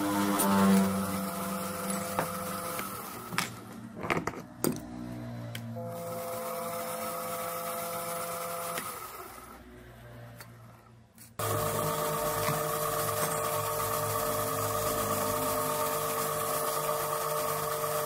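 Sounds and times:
metal lathe motor whine: 0:00.0 - 0:03.6, 0:05.8 - 0:09.6, 0:11.4 - 0:18.0.

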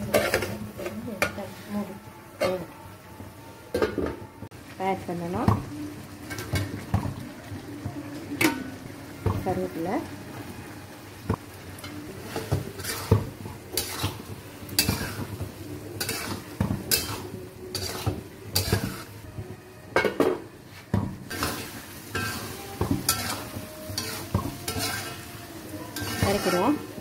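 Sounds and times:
spatula scraping metal wok: 0:00.0 - 0:02.6, 0:11.8 - 0:19.2, 0:20.7 - 0:27.0
light sizzle of frying: 0:00.0 - 0:27.0.

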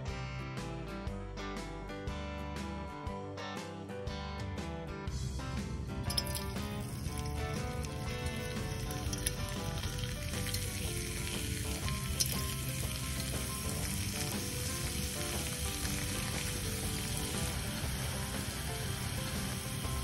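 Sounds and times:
potatoes sizzling in hot oil: 0:06.1 - 0:20.0.

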